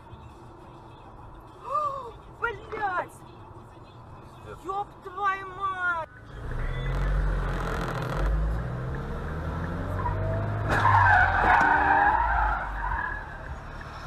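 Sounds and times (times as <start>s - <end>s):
car engines running: 0.0s - 14.0s
car tyres screeching: 6.4s - 14.0s.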